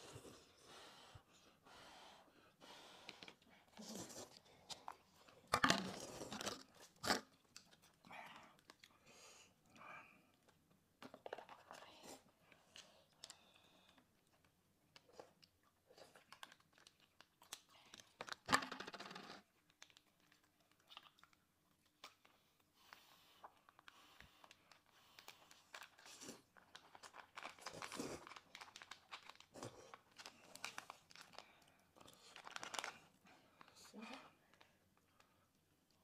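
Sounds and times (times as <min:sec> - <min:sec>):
plastic snack packet crinkling: 0:11.0 - 0:12.0, 0:12.7 - 0:22.4, 0:23.6 - 0:35.6.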